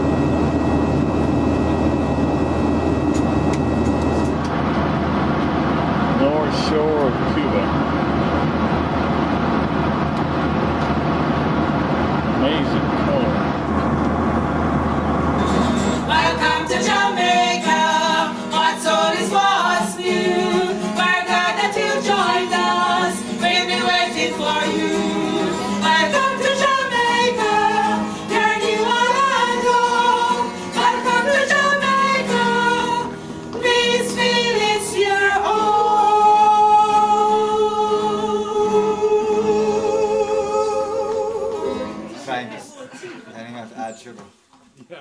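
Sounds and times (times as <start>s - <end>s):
airliner cabin drone: 0.0s - 19.2s
acoustic guitar: 0.0s - 44.0s
women singing together: 16.0s - 42.1s.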